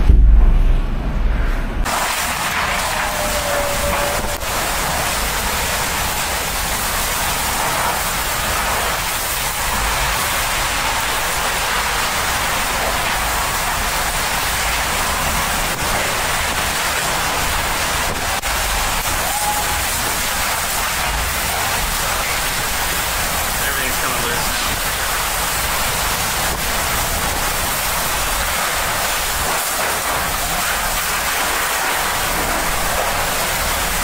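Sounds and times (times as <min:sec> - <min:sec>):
wind driving heavy rain: 0:00.0 - 0:34.0.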